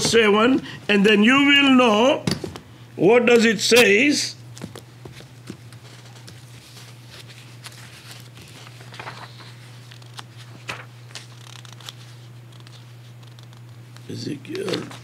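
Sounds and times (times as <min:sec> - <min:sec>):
paper rustling: 0:04.6 - 0:13.8, 0:14.5 - 0:15.0.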